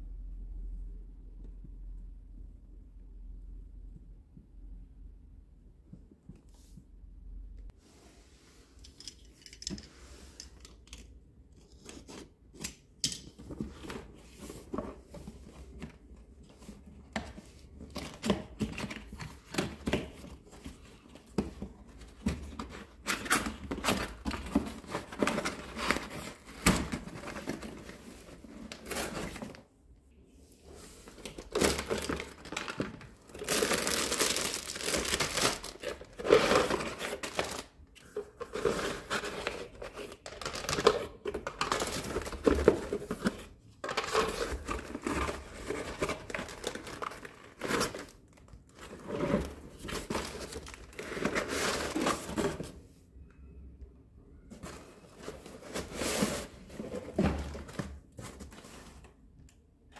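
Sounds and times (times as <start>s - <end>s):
plastic packaging crinkling: 31.3s - 37.8s, 38.5s - 48.8s.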